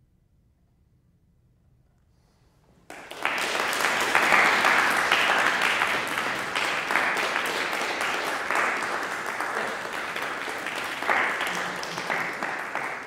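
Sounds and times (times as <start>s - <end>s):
audience applause: 2.9s - 13.0s.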